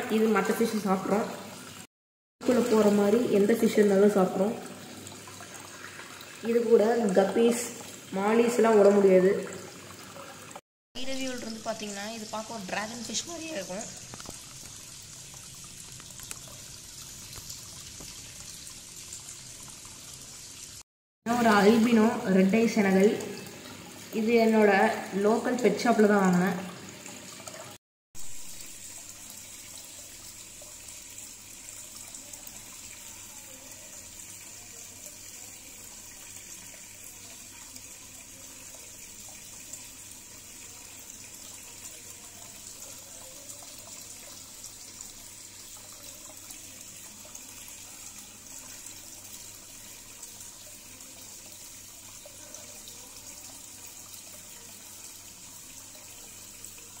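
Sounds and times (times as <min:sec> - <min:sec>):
aquarium filter water splashing: 0:00.0 - 0:57.0.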